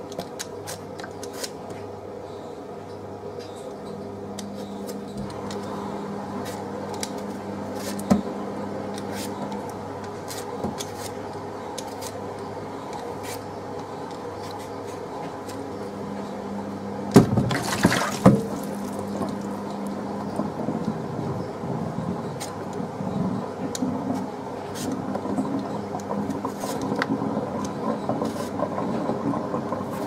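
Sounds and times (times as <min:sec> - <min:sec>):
steady hum: 0:00.0 - 0:30.0
water splashing and sloshing: 0:17.1 - 0:19.6.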